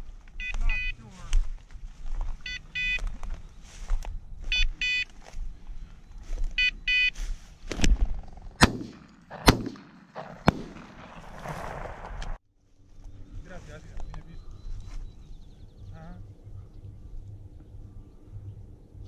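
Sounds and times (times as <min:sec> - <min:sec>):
short electronic beeps: 0:00.4 - 0:01.0, 0:02.4 - 0:03.1, 0:04.5 - 0:05.1, 0:06.6 - 0:07.2
shotgun shots echoing: 0:08.6 - 0:12.3.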